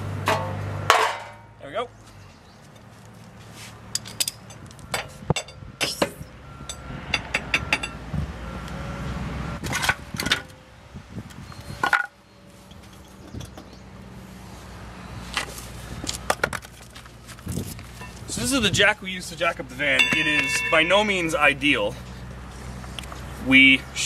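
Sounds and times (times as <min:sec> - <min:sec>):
low noise: 0:17.8 - 0:24.0
metal jack handle clanking: 0:20.0 - 0:21.2.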